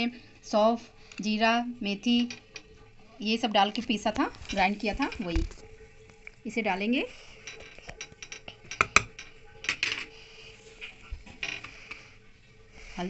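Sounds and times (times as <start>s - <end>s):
metal kitchenware clinking: 6.7s - 10.3s.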